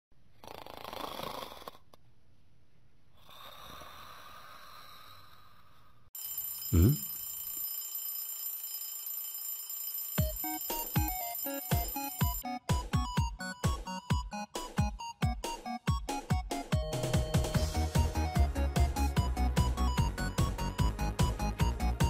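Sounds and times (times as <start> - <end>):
cartoon snoring: 0.4 - 1.9, 3.1 - 6.0
high electronic ringing: 6.2 - 12.4.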